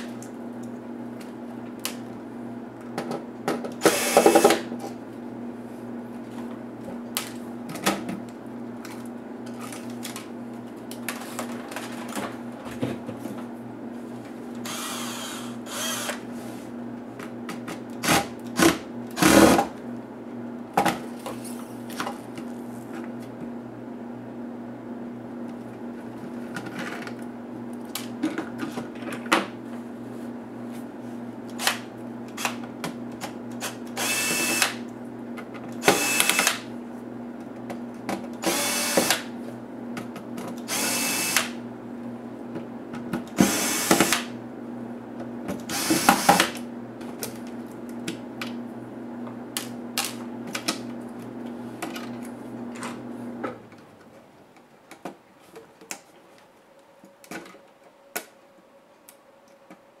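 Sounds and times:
electric screwdriver whirring: 3.8s - 4.7s, 14.6s - 16.2s, 33.6s - 34.8s, 35.8s - 36.6s, 38.4s - 39.3s, 40.7s - 41.6s, 43.4s - 44.3s, 45.7s - 46.6s.

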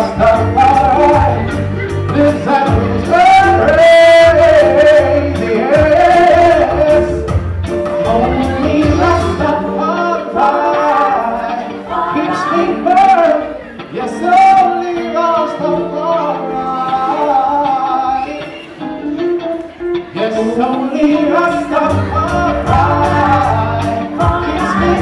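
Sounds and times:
music with low bass: 0.0s - 10.5s, 21.7s - 25.0s
man singing into microphone: 0.0s - 19.3s, 20.1s - 25.0s.

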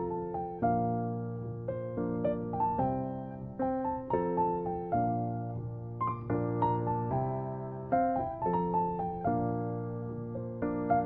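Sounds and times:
slow piano melody: 0.0s - 11.0s.

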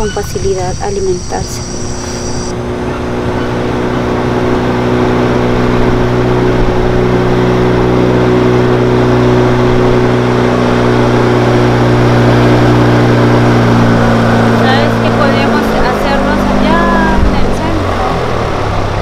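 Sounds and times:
boat motor running: 0.0s - 19.0s
water rushing along hull: 0.0s - 19.0s.

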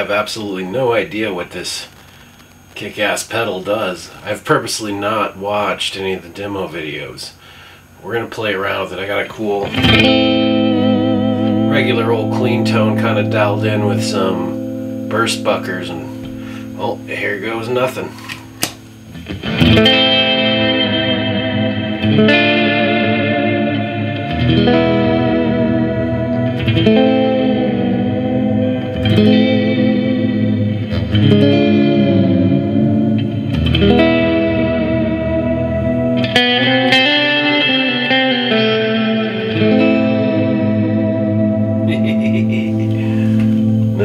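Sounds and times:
electric guitar chords with reverb: 9.6s - 44.0s.

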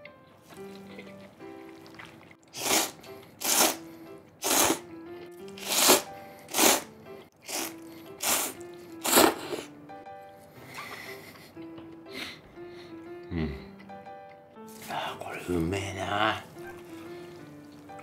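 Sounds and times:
light background music: 0.0s - 18.0s
man slurping noodles: 0.5s - 9.7s.

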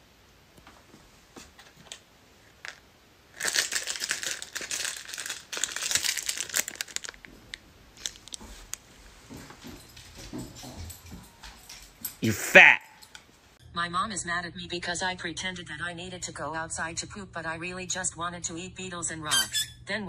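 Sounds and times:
food wrapper crinkling: 1.9s - 8.9s.

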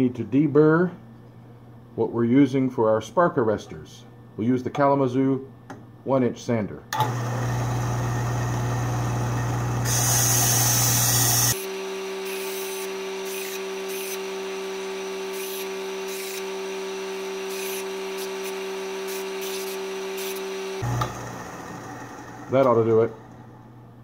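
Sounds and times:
belt sander motor hum: 7.0s - 23.7s
metal strip scraping belt: 17.5s - 20.5s.

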